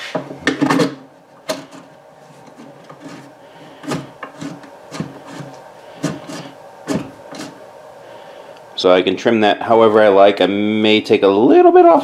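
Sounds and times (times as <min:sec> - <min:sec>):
wooden knocks and rubbing: 0:02.4 - 0:07.6.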